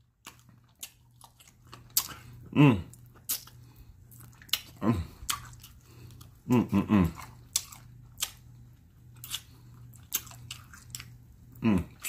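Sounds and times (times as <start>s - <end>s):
wet mouth smacks while chewing: 0.2s - 6.4s, 7.1s - 8.5s, 9.2s - 11.2s
man humming mmm: 2.4s - 3.0s, 4.8s - 5.2s, 6.4s - 7.3s, 11.6s - 12.0s.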